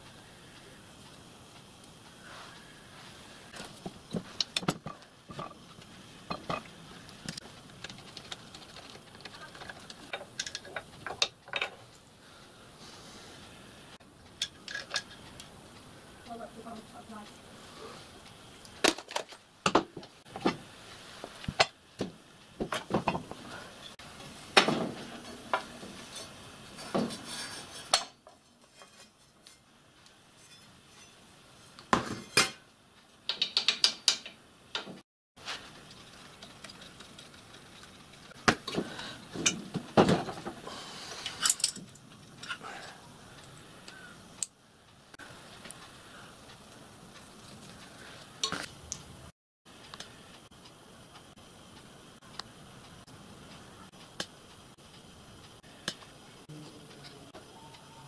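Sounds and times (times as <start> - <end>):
metal clicks and clinks: 41.3 - 42.6.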